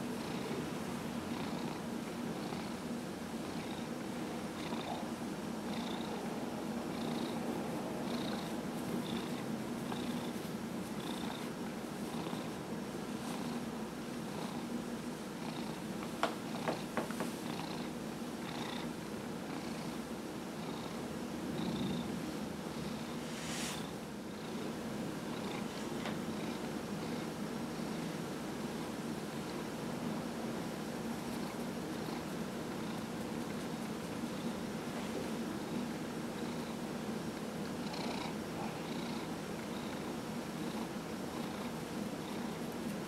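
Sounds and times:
cat purring: 0:01.3 - 0:02.8, 0:03.4 - 0:06.3, 0:06.9 - 0:12.6, 0:15.4 - 0:20.0, 0:20.6 - 0:28.2, 0:31.2 - 0:33.6, 0:37.6 - 0:42.6.

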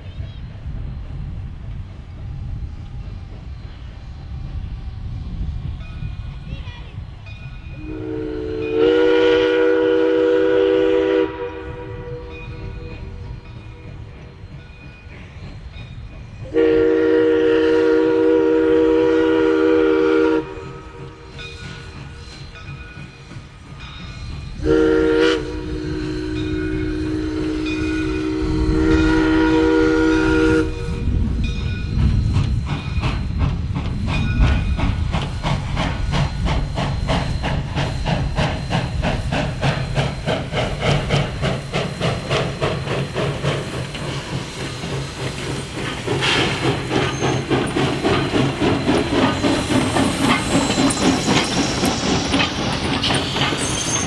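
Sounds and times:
steam locomotive chuffing: 0:00.0 - 0:54.0
steam whistle blast: 0:07.8 - 0:13.2, 0:16.5 - 0:21.2, 0:24.6 - 0:31.1.

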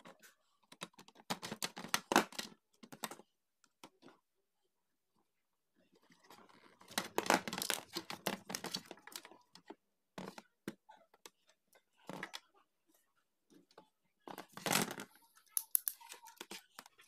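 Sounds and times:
plastic cover rustling and scraping: 0:06.0 - 0:09.4.

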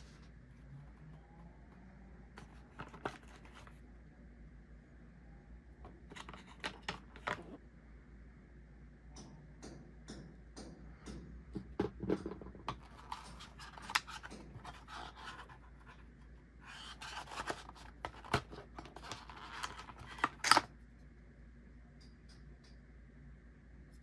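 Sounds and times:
plastic parts clicking and rustling: 0:12.2 - 0:15.6, 0:16.7 - 0:20.7.

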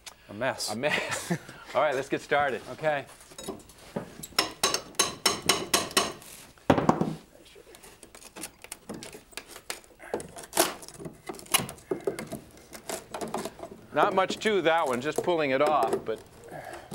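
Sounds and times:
hammer knocking on wood: 0:04.4 - 0:07.1
wood crashing loose: 0:08.1 - 0:16.9.

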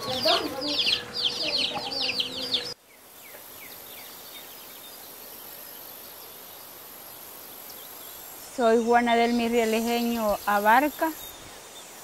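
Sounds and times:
faint bird chirps: 0:00.0 - 0:12.0
soft hiss: 0:02.8 - 0:12.0.

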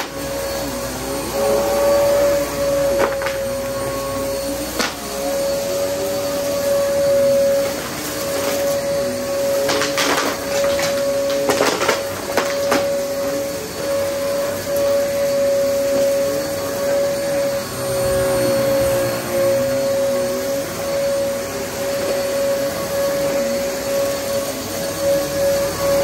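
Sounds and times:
vacuum cleaner running: 0:00.0 - 0:26.0
debris crackling in vacuum: 0:07.7 - 0:13.4.

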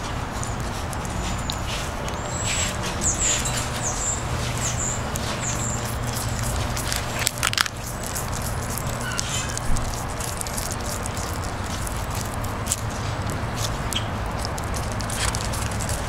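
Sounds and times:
iguana crunching leaf: 0:00.0 - 0:16.0
steady background noise: 0:00.0 - 0:16.0.

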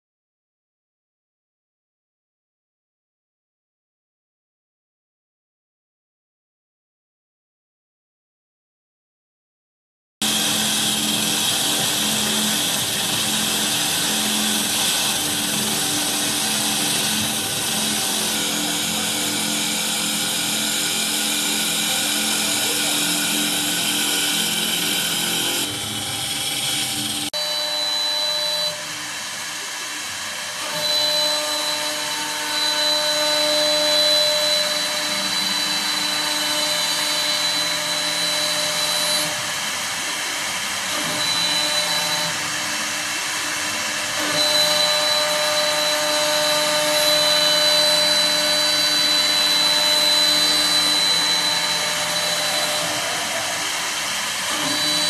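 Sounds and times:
cutters shaving spinning wood: 0:10.2 - 0:28.1, 0:28.9 - 0:55.0
lathe spindles whining: 0:10.2 - 0:55.0.

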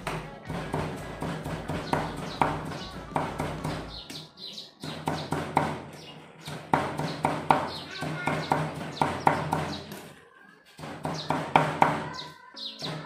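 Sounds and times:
knife chopping on wooden block: 0:00.0 - 0:03.9, 0:06.4 - 0:10.0
birds chirping: 0:00.1 - 0:13.0.

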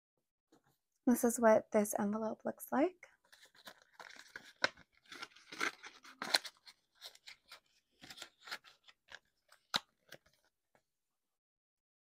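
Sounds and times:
paper rustling and crinkling: 0:03.2 - 0:10.5.

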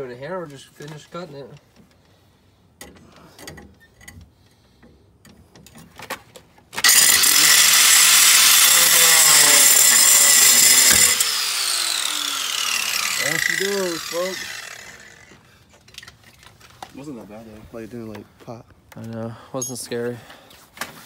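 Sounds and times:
angle grinder cutting steel: 0:06.8 - 0:15.4
falling whine: 0:06.8 - 0:15.4.

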